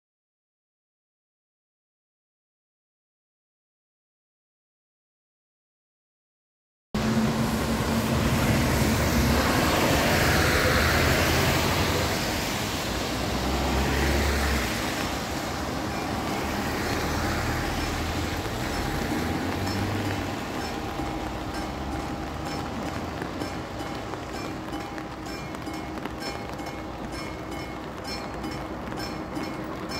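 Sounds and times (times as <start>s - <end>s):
tyres hissing on wet road: 7.0s - 29.9s
level crossing warning bells: 13.6s - 29.9s.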